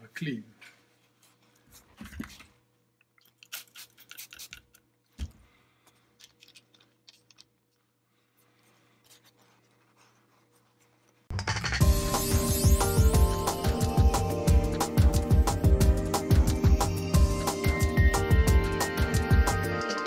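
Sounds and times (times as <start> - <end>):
paper towel rubbing plastic: 8.3 - 11.3.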